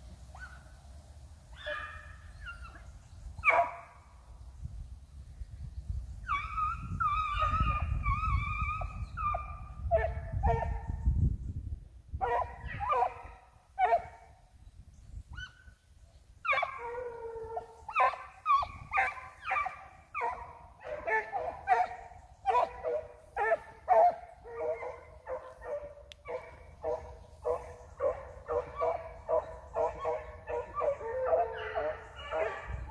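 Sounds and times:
hounds yelping: 1.5 - 2.8, 3.4 - 3.9, 6.2 - 10.9, 12.2 - 14.2, 16.4 - 32.9.

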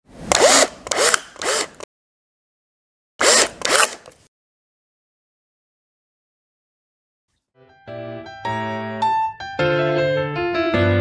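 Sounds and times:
drill driver driving screws: 0.2 - 1.9, 3.2 - 4.3.

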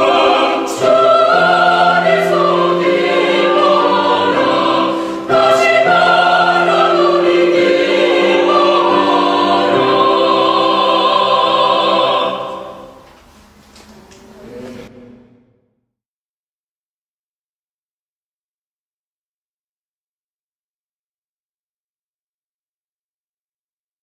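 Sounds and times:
mixed choir singing: 0.0 - 13.1.

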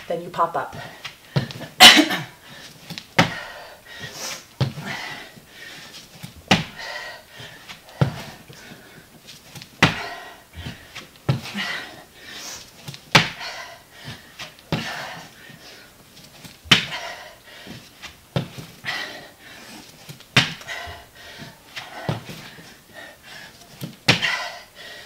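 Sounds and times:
hard breathing: 0.8 - 25.0
body thudding on floor: 6.4 - 6.8, 13.1 - 13.4, 16.6 - 17.0.

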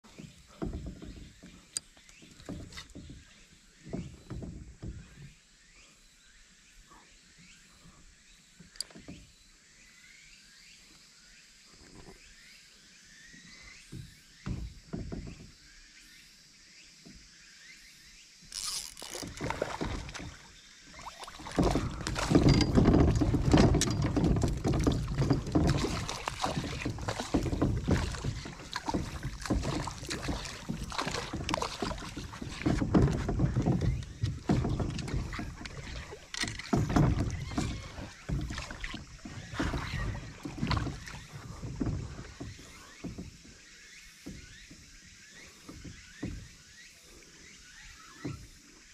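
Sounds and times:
fish splashing in water: 18.5 - 41.4.

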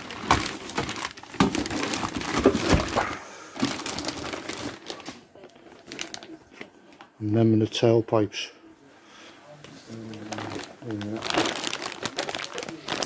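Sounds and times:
plastic bag crinkling: 0.0 - 7.0, 9.9 - 13.0.

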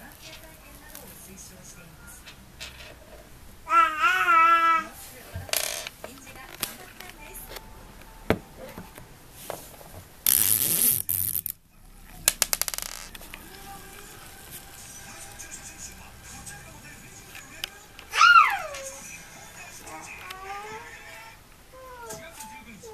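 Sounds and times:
buzzing rattle: 10.2 - 11.6.

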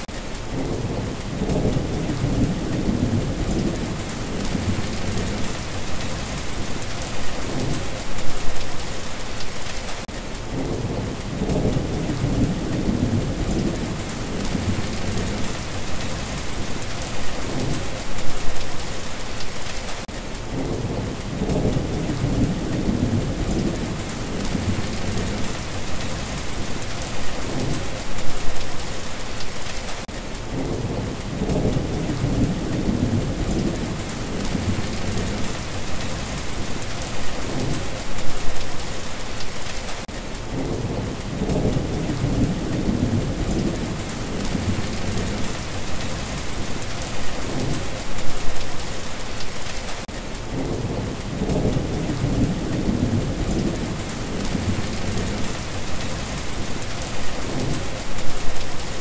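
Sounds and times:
steady rain hiss: 0.0 - 59.0
rolling thunder: 0.5 - 8.0, 10.5 - 18.0, 20.5 - 28.0, 30.5 - 38.0, 40.5 - 48.0, 50.5 - 58.8.

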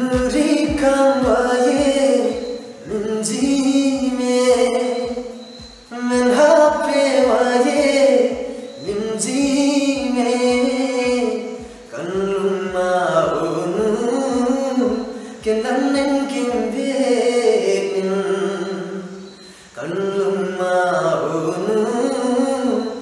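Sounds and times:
low rhythmic thump: 0.0 - 16.8
man singing long notes: 0.0 - 19.2.

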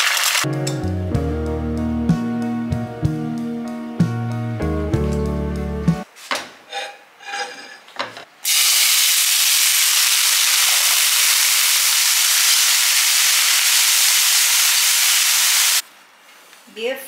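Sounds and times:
hot oil crackling in a pan: 0.0 - 0.5, 8.5 - 15.8
mushrooms sizzling in oil: 8.4 - 15.8.

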